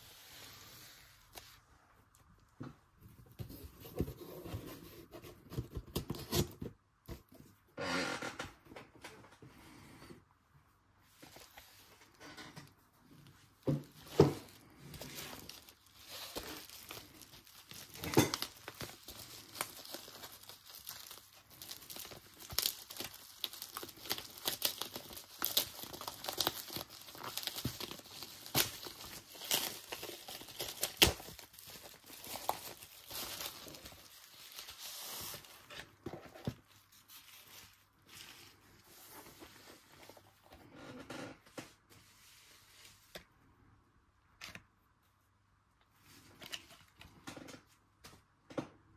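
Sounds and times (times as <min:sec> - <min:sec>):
bubble wrap crinkling and tearing: 0:13.1 - 0:40.5.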